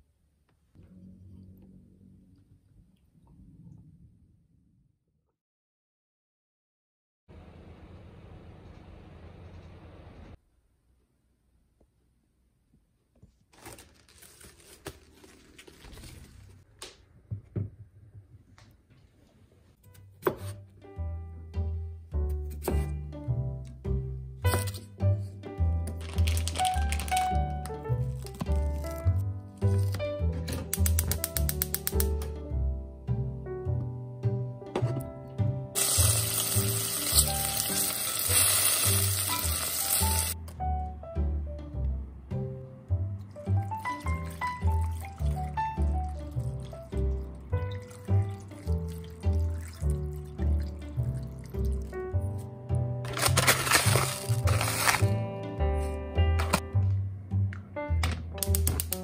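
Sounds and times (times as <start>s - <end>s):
plastic wrap crinkling: 13.4s - 16.7s, 26.0s - 27.5s, 53.1s - 55.2s
soft background music: 19.8s - 59.0s
pork sizzling in hot oil: 35.8s - 40.4s.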